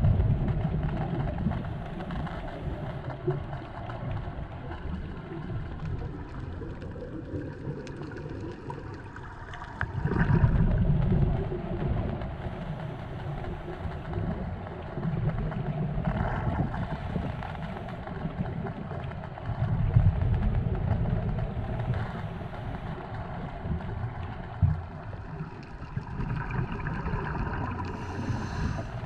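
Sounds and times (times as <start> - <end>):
exhaled bubbles rumbling: 0.0 - 29.0
steady background hum: 0.0 - 29.0
scuba diver breathing underwater: 26.2 - 29.0.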